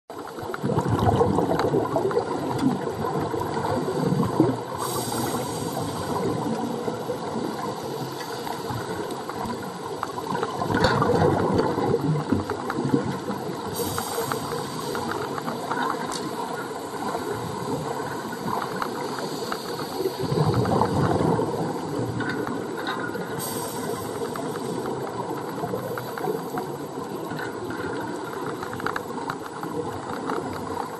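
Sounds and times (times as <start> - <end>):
exhaled bubbles gurgling underwater: 0.1 - 30.9
regulator hiss: 4.7 - 9.4, 13.6 - 20.4, 23.4 - 25.3.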